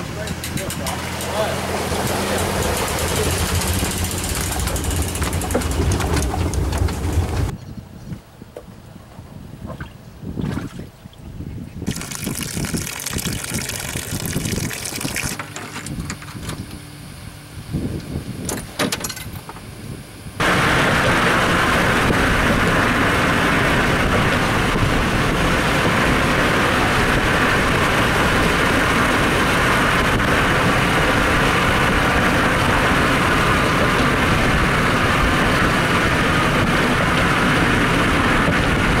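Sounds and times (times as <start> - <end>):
car road and wind noise: 0.0 - 39.0
water trickling onto grass: 11.9 - 15.4.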